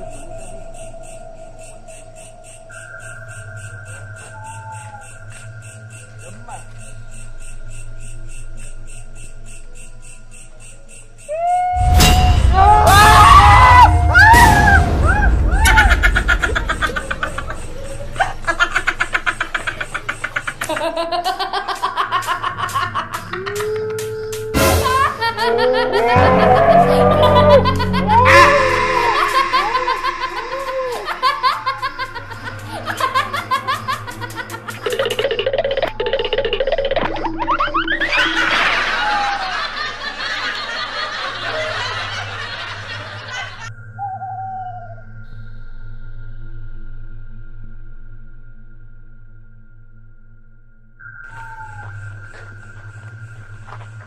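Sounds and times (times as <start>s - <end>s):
music: 0.0s - 54.0s
laughter in quick bursts: 15.6s - 24.1s, 24.8s - 43.7s
rising whistle glides: 28.1s - 32.3s, 51.0s - 53.5s
steady held tone: 28.1s - 32.9s.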